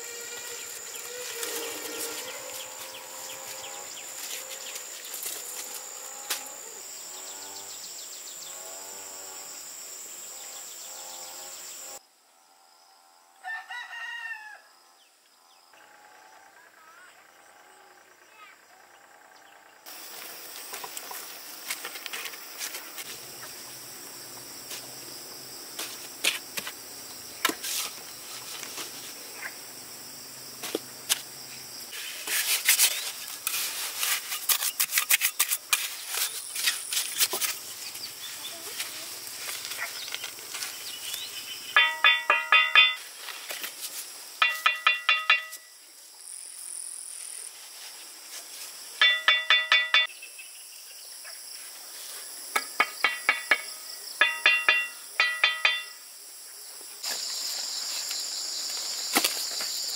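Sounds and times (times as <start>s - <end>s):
high insect chirring: 0.0s - 12.0s, 34.3s - 47.2s, 48.8s - 51.1s, 52.4s - 56.4s.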